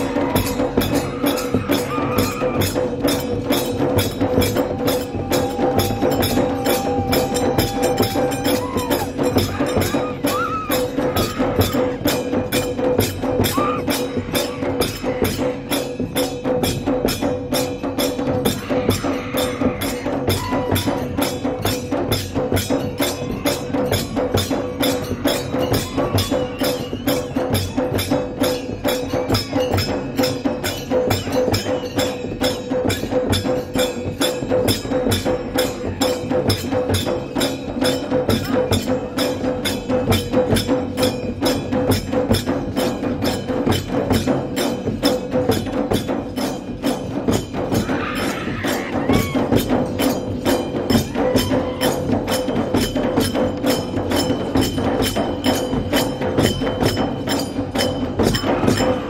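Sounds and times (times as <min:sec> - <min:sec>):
barrel drums beaten fast: 0:00.0 - 0:59.0.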